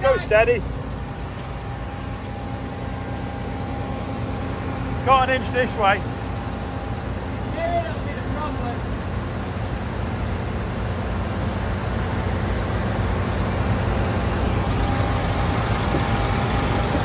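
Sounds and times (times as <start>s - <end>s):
combine harvester engine droning: 0.0s - 17.0s.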